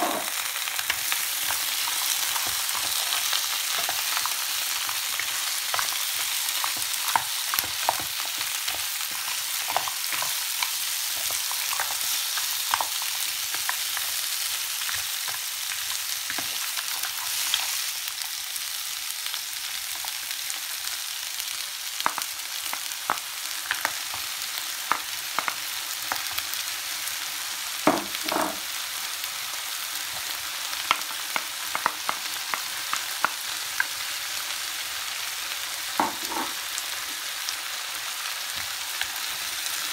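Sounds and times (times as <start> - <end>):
food sizzling in a frying pan: 0.0 - 39.9
spatula and shells knocking on pan: 27.8 - 28.6, 36.0 - 36.6.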